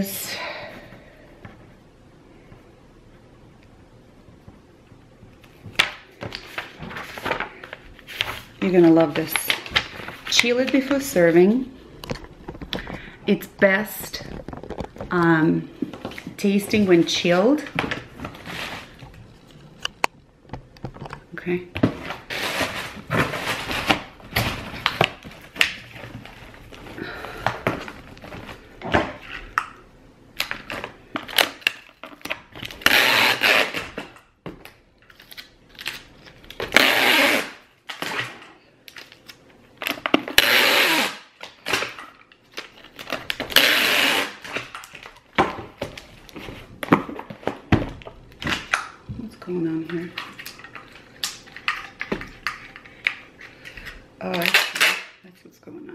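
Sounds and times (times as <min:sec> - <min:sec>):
packing tape pulled from tape gun: 0:22.3 - 0:24.0, 0:31.2 - 0:34.2, 0:35.1 - 0:38.4, 0:39.0 - 0:42.0, 0:42.6 - 0:45.1, 0:54.2 - 0:55.2.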